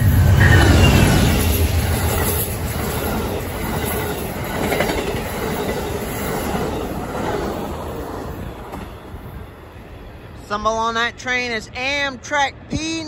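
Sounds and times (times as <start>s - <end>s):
train wheels rumbling on rails: 0.0s - 10.4s.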